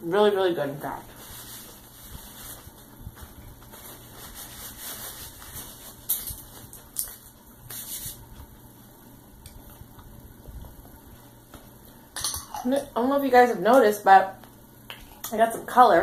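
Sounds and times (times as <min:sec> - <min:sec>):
paper napkin rustling: 0:00.8 - 0:08.5.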